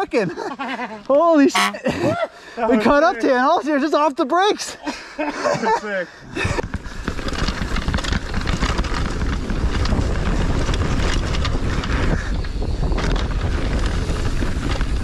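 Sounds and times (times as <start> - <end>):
wind buffeting microphone: 6.2 - 15.0
mountain bike rattling on trail: 6.4 - 15.0.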